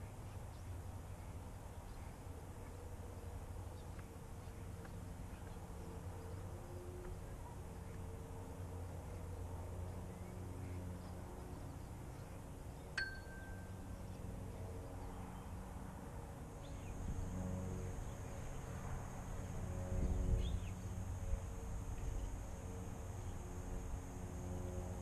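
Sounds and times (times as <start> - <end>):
low outdoor rumble: 0.0 - 25.0
short metallic ding: 13.0 - 13.7.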